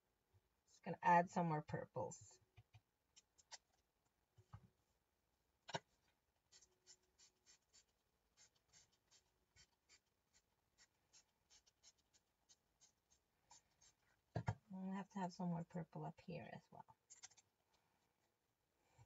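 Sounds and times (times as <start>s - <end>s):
colouring tool scratching: 6.5s - 14.0s.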